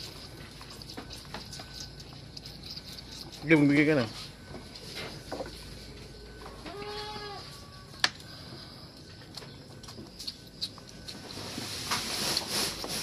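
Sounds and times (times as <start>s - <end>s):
goat bleating: 6.6s - 7.6s.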